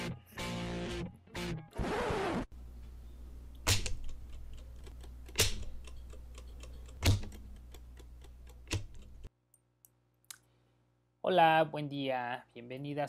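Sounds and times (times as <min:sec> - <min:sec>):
steady low hum: 0:02.5 - 0:09.3
sharp clicks: 0:03.5 - 0:10.4.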